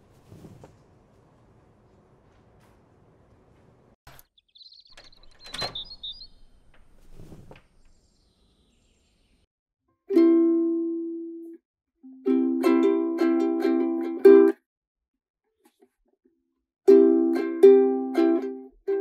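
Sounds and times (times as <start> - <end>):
birds chirping: 4.1 - 7.0, 7.7 - 9.5
door click: 4.9 - 6.9
ukulele chord strummed: 10.1 - 14.6, 16.9 - 19.0.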